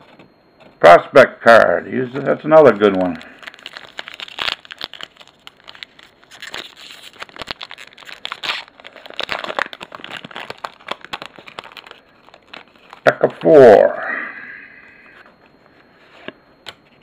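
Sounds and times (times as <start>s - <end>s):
foil wrapper crinkling: 2.0s - 13.5s.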